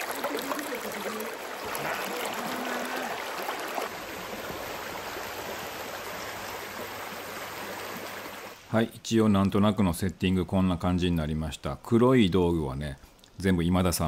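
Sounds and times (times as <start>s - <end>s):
stream rushing over rocks: 0.0s - 8.6s.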